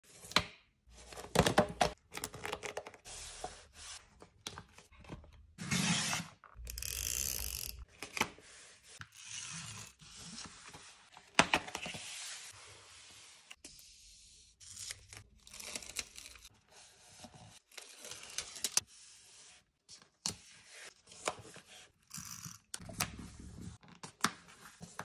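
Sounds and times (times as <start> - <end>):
paper sliding and rustling: 11.8 - 13.6.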